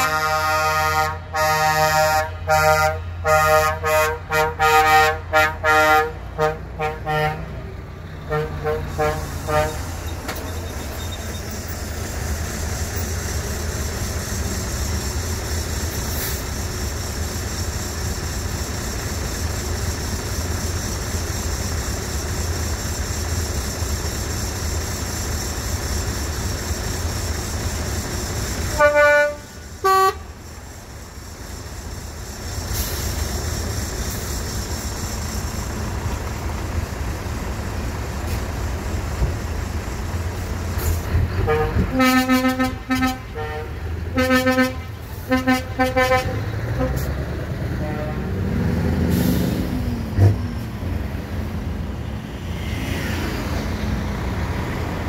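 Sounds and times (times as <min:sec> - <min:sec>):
truck air horn toots: 0:00.0 - 0:10.1, 0:28.7 - 0:30.4, 0:41.4 - 0:48.5
truck diesel engines rumbling: 0:00.0 - 0:55.0.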